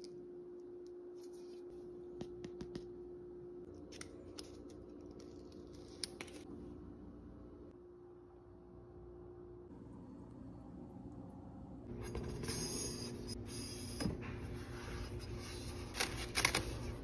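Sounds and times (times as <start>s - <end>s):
steady low hum: 0.0s - 17.0s
paper backing crinkling: 15.2s - 17.0s.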